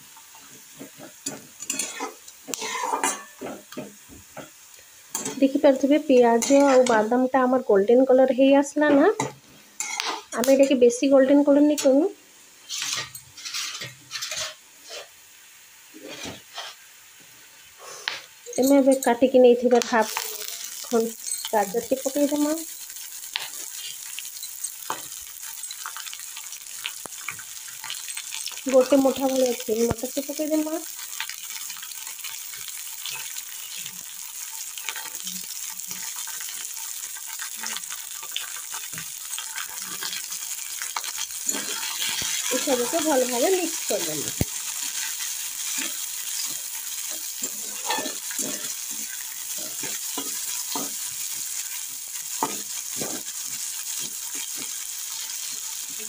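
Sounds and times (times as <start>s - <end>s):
light oil sizzle: 0.0s - 56.0s
metal spatula scraping pan: 6.3s - 7.0s, 12.6s - 15.1s, 16.0s - 16.8s, 41.0s - 43.4s, 44.7s - 51.1s, 52.4s - 53.4s.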